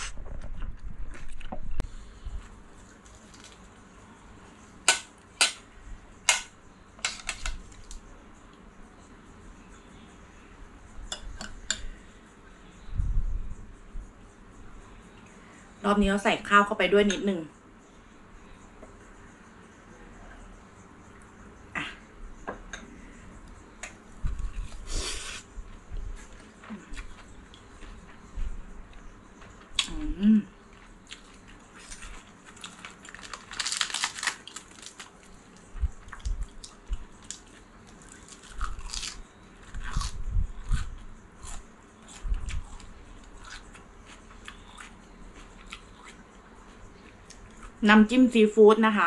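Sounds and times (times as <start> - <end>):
person chewing: 30.7 - 35.0, 36.0 - 47.8.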